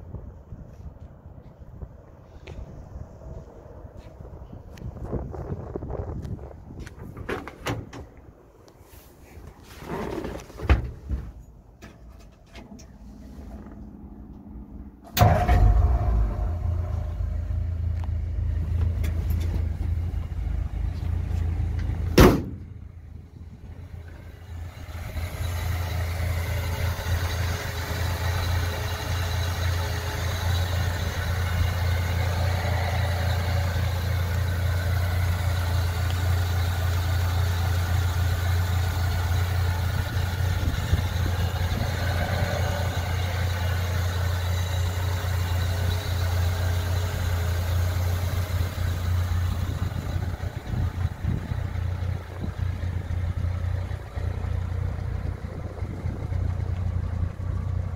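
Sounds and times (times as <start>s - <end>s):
engine idling: 11.9s - 57.9s
sharp bang: 15.1s - 20.0s, 22.1s - 22.8s.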